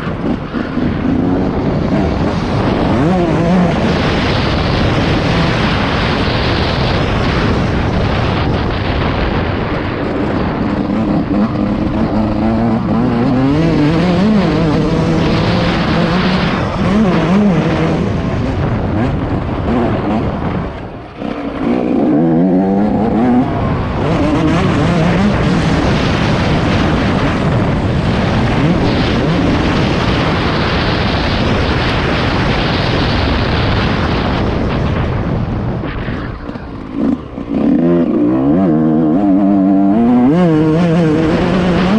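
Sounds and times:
motocross bike engine revving: 0:00.0 - 0:32.5, 0:36.3 - 0:41.9.

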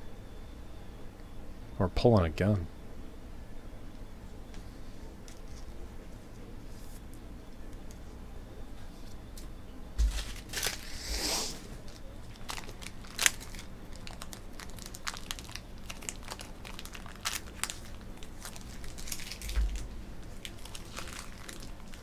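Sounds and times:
plastic packaging crinkling: 0:10.0 - 0:11.0, 0:11.8 - 0:22.0.

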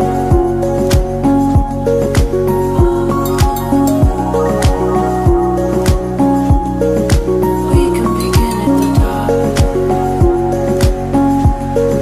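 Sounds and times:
song with steady beat: 0:02.2 - 0:11.7
sustained melodic notes: 0:02.5 - 0:10.5.

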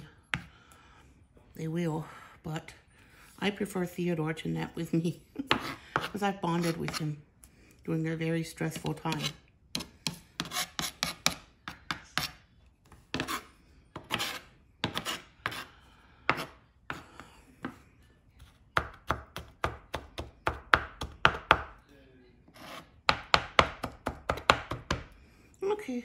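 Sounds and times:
knife chopping on plastic board: 0:00.3 - 0:00.5, 0:05.5 - 0:07.0, 0:08.7 - 0:12.4, 0:13.0 - 0:17.8, 0:18.4 - 0:21.8, 0:22.6 - 0:25.2.

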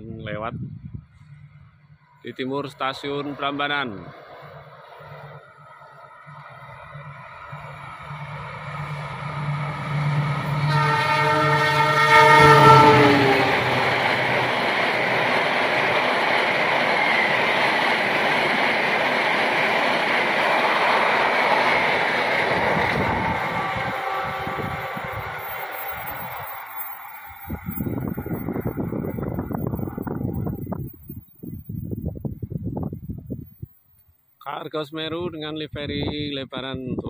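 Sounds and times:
diesel locomotive engine drone: 0:00.0 - 0:33.7
train wheels on rails: 0:03.1 - 0:32.2
train horn: 0:07.1 - 0:16.0, 0:22.3 - 0:27.8.

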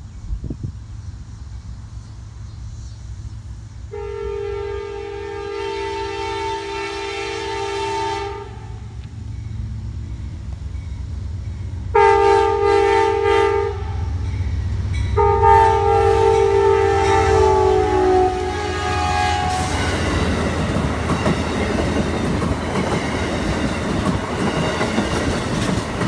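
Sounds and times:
train rumbling: 0:00.0 - 0:26.0
locomotive air horn chord: 0:03.9 - 0:08.9, 0:11.9 - 0:14.2, 0:15.2 - 0:20.2.

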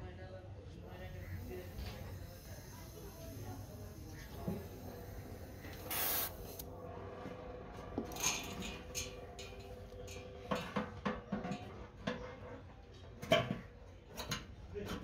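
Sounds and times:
welding torch hissing: 0:00.9 - 0:06.7.

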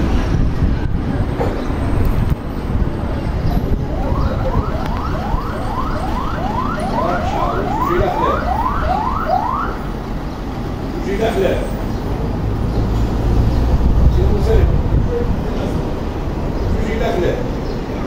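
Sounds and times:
road traffic rumbling: 0:00.0 - 0:18.0
distant electronic siren yelping: 0:03.7 - 0:10.0.

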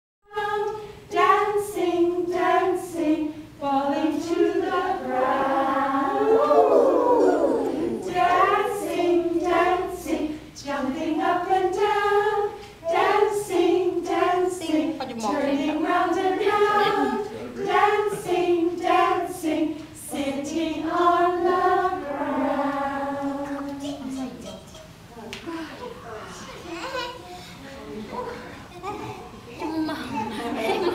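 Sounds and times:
group of adults singing: 0:00.3 - 0:24.4.

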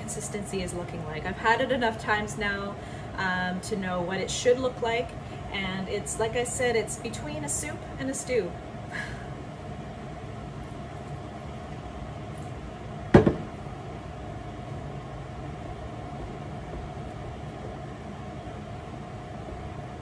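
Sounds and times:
steady mechanical hum: 0:00.0 - 0:20.0
plastic jug set down: 0:13.2 - 0:13.5.

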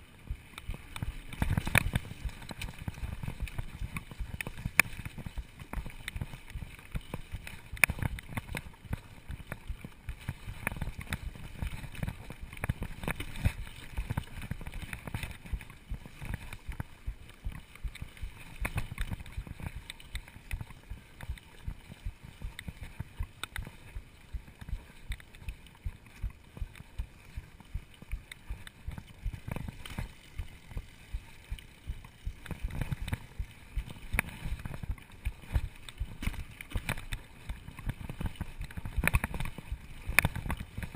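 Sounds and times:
bike rattling: 0:00.0 - 0:40.9
bike tyres rolling over dirt: 0:00.0 - 0:40.9.

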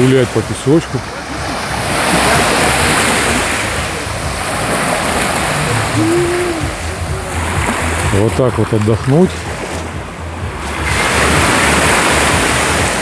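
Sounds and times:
waves washing onto shore: 0:00.0 - 0:13.0
distant voice calling: 0:05.4 - 0:08.1.

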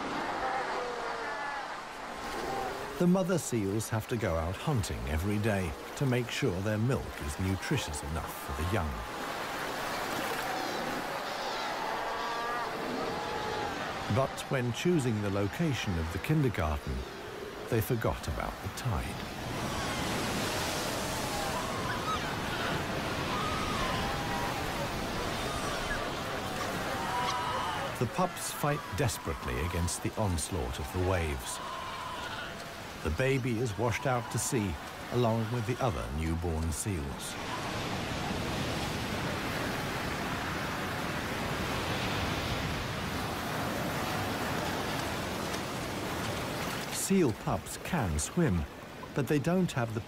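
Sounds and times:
ocean surf breaking: 0:00.0 - 0:50.0.

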